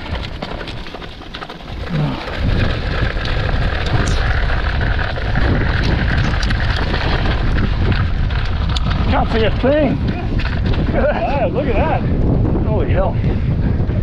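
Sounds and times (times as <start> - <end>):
tyres rolling over ground: 0.0 - 12.0
bike clicks and rattles: 0.0 - 12.6
wind buffeting microphone: 0.0 - 14.0.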